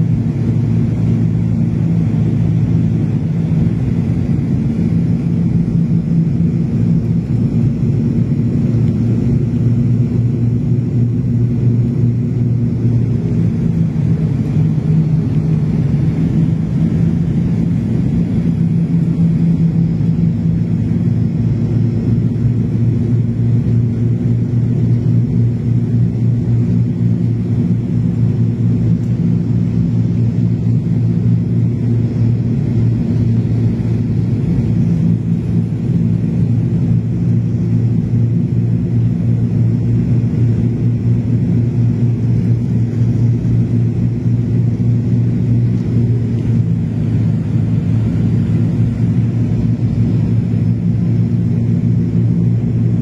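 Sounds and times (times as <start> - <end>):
turboprop engine drone in cabin: 0.0 - 53.0.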